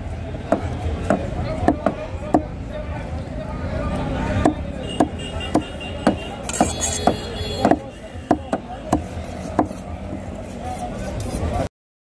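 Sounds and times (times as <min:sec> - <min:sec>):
knife chopping on wooden block: 0:00.5 - 0:02.5, 0:04.4 - 0:10.2.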